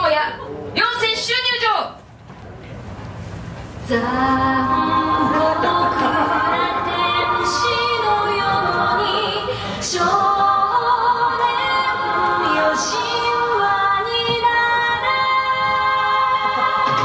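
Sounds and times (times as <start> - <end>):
song with singing voice: 3.9 - 17.0.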